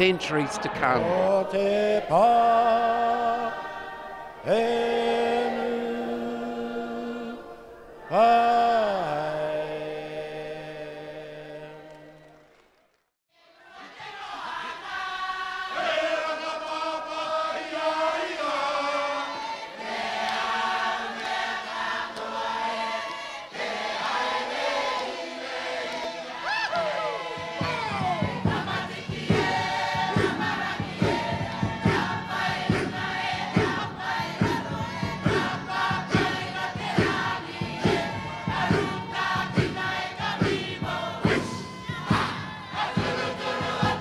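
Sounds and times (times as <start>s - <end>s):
choir singing a hymn: 0.0s - 12.3s, 13.4s - 44.0s
steady beat: 27.3s - 44.0s.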